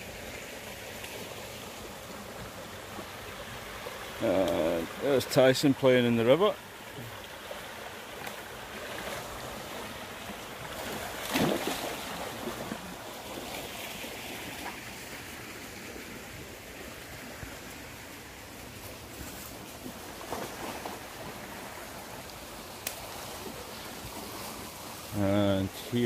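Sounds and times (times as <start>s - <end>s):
stream rushing over riffle: 0.0s - 26.0s
knock or splash: 11.2s - 12.0s.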